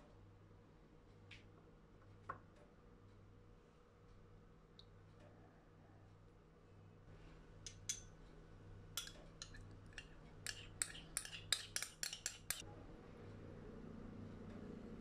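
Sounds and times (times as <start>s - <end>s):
teaspoon clinking on glass dish: 9.0s - 12.6s.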